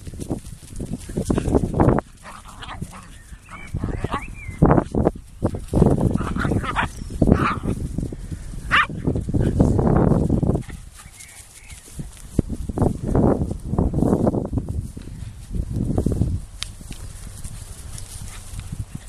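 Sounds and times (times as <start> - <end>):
dogs barking: 8.7 - 8.9.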